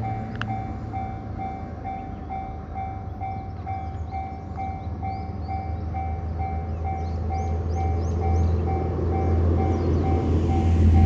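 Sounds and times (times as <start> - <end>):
level crossing warning bell: 0.0 - 11.0
low rumble: 7.7 - 11.0.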